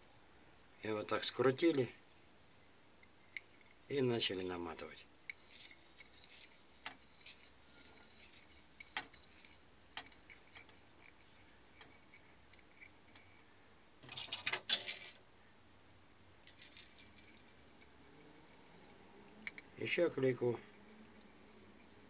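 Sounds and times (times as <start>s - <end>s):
clicks and rattles: 5.3s - 13.4s, 14.0s - 15.2s, 16.4s - 17.9s.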